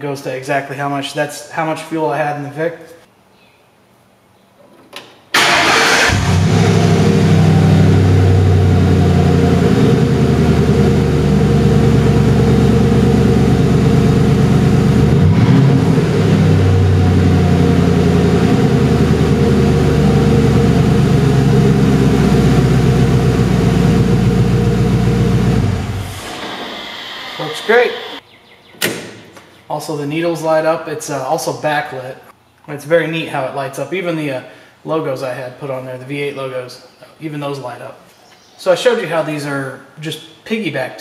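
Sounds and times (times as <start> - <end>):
car engine starting and idling: 5.3 - 28.2.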